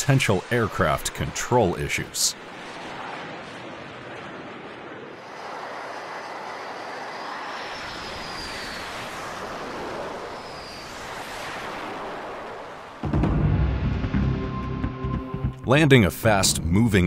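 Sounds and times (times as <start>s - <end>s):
jet engines running: 0.0s - 17.0s
faint high whine: 5.2s - 13.0s.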